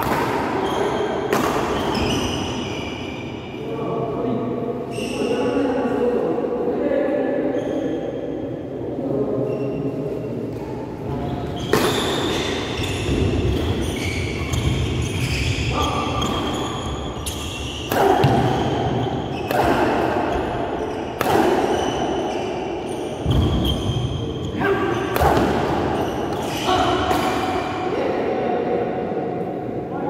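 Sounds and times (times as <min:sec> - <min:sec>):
racket hitting shuttlecock: 0:00.0 - 0:00.6, 0:01.3 - 0:02.0, 0:11.7 - 0:12.5, 0:17.8 - 0:20.3, 0:21.2 - 0:21.9, 0:25.1 - 0:27.7
shoes squeaking on court: 0:00.6 - 0:03.0, 0:09.5 - 0:19.6, 0:20.3 - 0:26.8.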